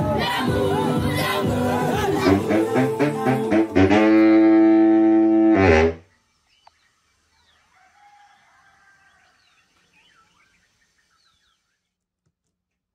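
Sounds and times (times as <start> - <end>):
baritone saxophone note: 2.2 - 6.0.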